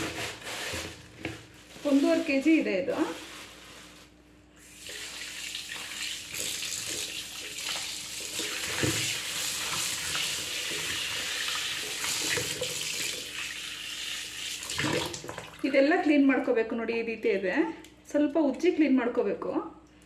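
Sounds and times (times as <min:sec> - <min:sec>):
tap water running into bowl: 0:04.8 - 0:15.6.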